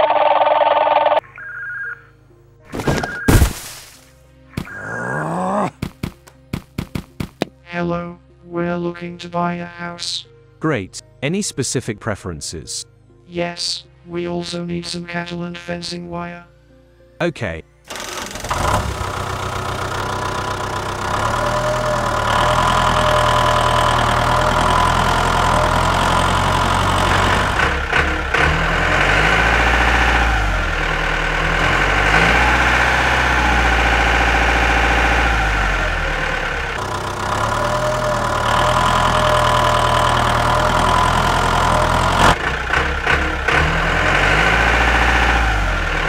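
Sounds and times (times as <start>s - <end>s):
diesel tractor engine running: 17.9s - 46.0s.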